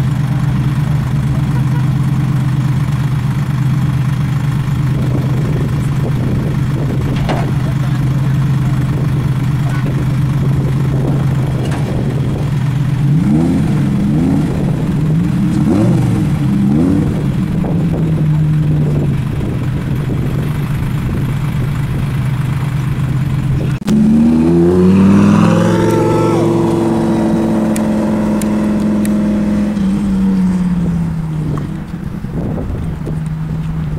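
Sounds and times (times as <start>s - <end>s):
car engine idling with throttle blips: 0.0s - 33.9s
car engine revving up: 4.5s - 22.2s, 23.0s - 33.9s.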